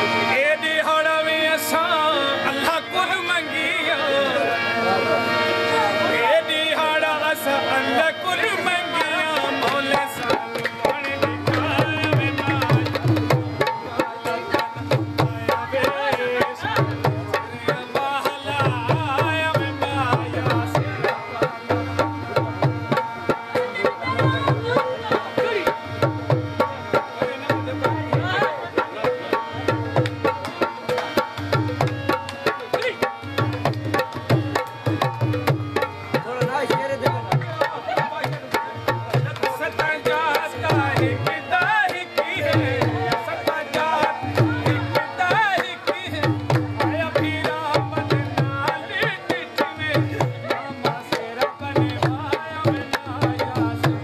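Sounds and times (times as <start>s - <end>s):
hand drums folk rhythm: 5.8s - 54.0s.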